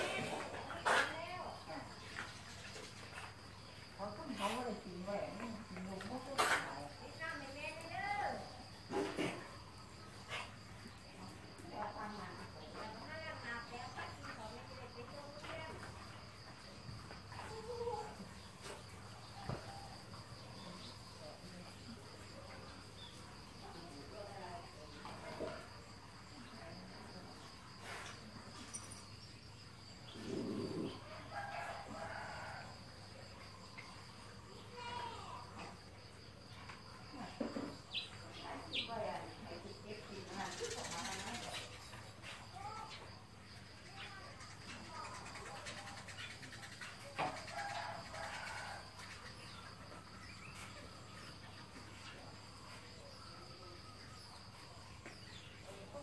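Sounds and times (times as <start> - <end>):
high insect drone: 0.0 - 56.0
rooster crowing: 31.1 - 33.0, 47.4 - 49.0.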